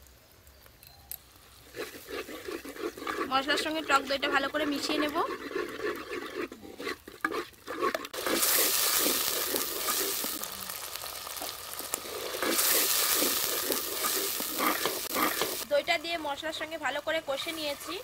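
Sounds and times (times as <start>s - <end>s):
paste sizzling in hot oil: 1.2s - 18.0s
wooden spatula scraping pot: 1.6s - 10.4s, 11.8s - 15.7s, 17.4s - 18.0s.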